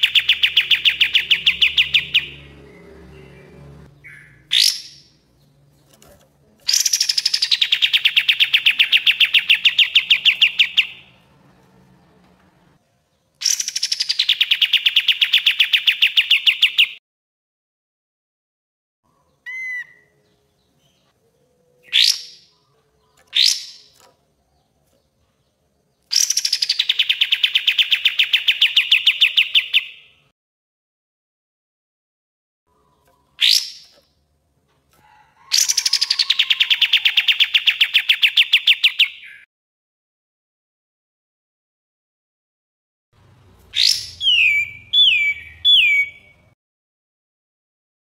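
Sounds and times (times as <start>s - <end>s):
bird singing fast stuttering trills: 0.0s - 5.5s, 6.7s - 11.2s, 35.6s - 39.4s, 43.7s - 46.5s.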